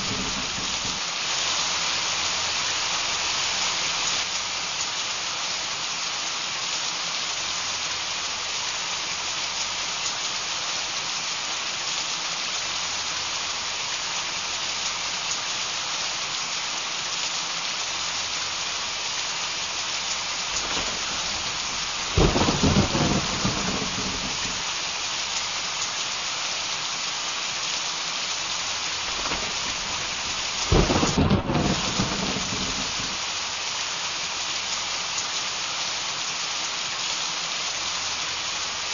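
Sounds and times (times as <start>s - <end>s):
thunder rumbling: 0.0s - 1.4s, 20.3s - 25.0s, 28.7s - 33.4s
heavy rain pouring: 0.0s - 38.9s.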